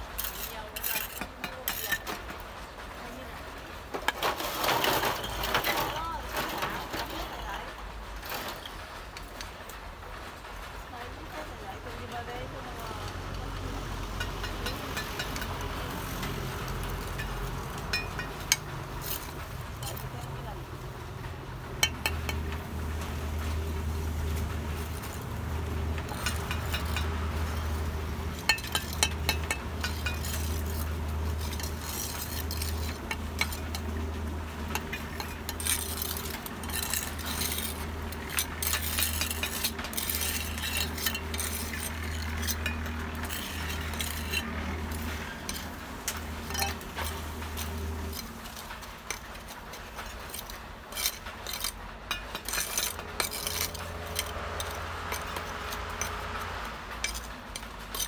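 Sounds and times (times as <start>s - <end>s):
trowel scraping wet mortar: 0.1s - 2.3s, 21.8s - 58.0s
trowel clinking against bricks: 0.1s - 2.4s, 14.2s - 20.6s, 21.8s - 22.6s, 24.4s - 58.0s.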